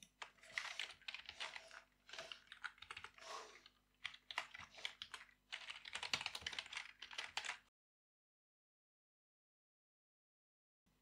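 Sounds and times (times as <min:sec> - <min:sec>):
computer keyboard typing: 0:00.0 - 0:07.6.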